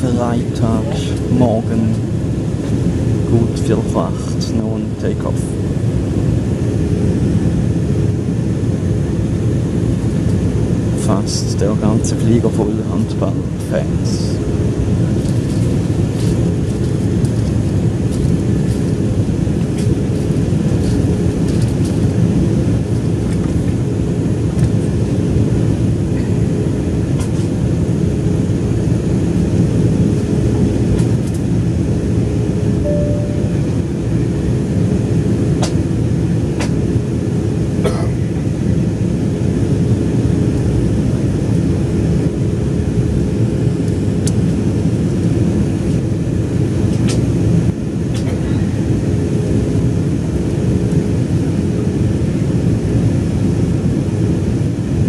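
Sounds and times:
jet engines humming: 0:00.0 - 0:55.0
faint steady tone: 0:32.8 - 0:33.7.

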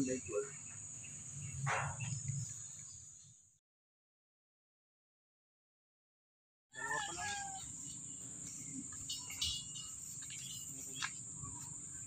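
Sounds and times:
insects droning: 0:00.0 - 0:03.6, 0:06.8 - 0:12.0
bird chirps: 0:06.9 - 0:12.0.

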